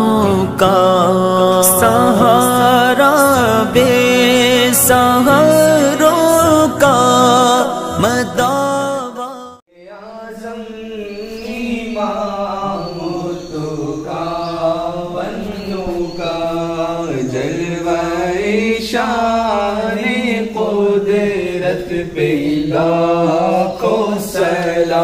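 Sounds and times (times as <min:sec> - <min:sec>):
person singing devotional song: 0:00.0 - 0:25.0.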